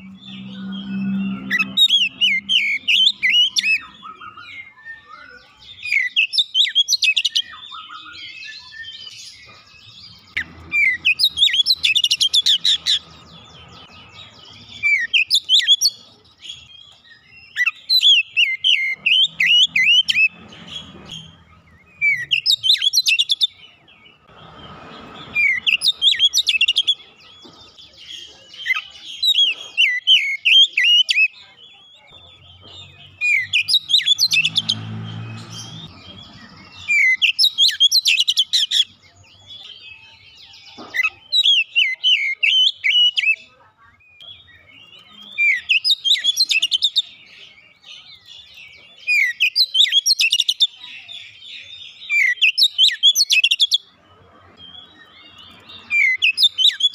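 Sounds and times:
bird singing whistled phrases: 0.0 - 9.2.

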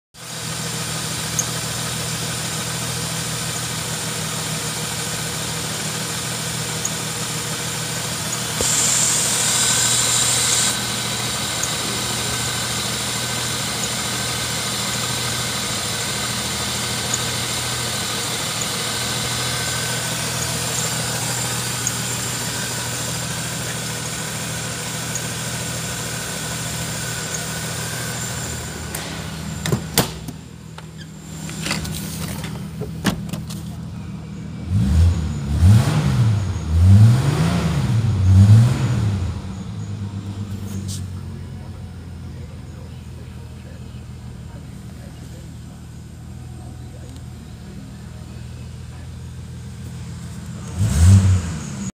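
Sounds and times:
car engine idling: 0.2 - 51.9
hiss: 8.6 - 17.4.

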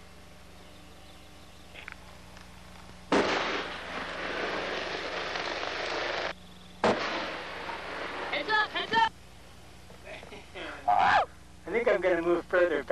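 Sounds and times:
dynamite blast bang: 3.1 - 8.6.

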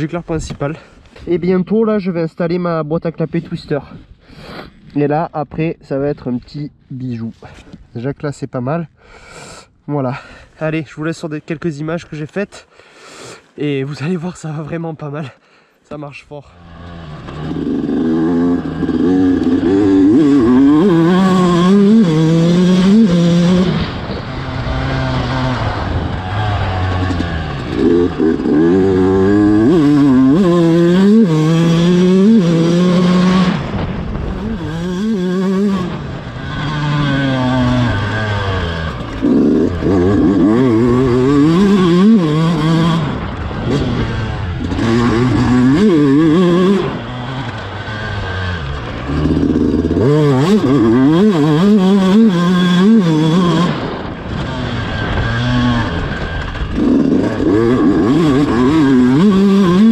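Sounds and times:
two-stroke dirt bike engine revving: 16.5 - 59.9.

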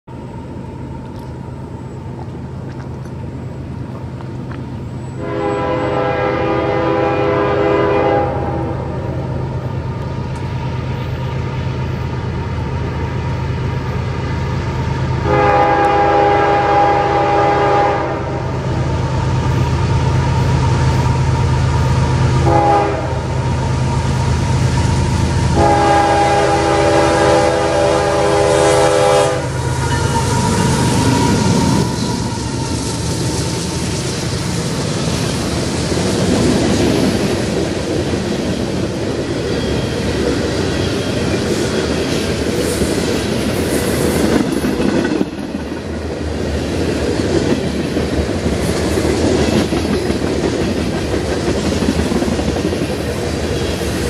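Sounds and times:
train rumble: 0.0 - 54.0
locomotive horn blasts: 5.2 - 9.0, 15.2 - 18.5, 22.4 - 23.4, 25.5 - 32.4.

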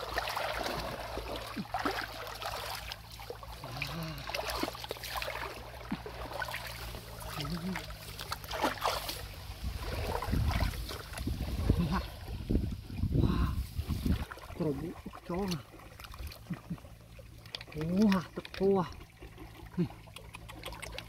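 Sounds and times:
hands splashing in water: 0.0 - 12.0
stream trickling: 0.0 - 21.0.

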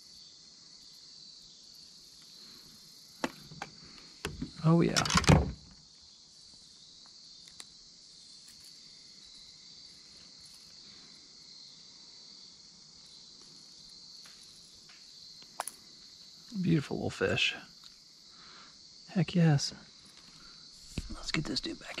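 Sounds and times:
insects buzzing: 0.0 - 22.0.

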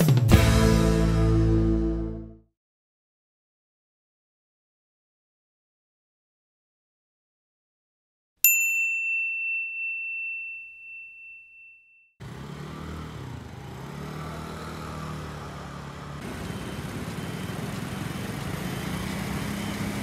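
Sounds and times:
bell-like chime ringing: 8.4 - 12.2
low engine hum: 12.2 - 20.0
street noise: 12.2 - 20.0.

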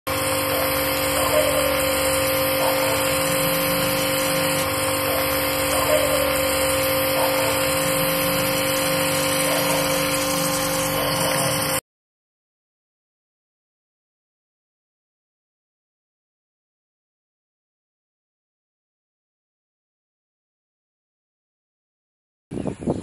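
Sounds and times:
pressure washer motor hum: 0.0 - 11.8
spray hissing: 0.1 - 11.8.

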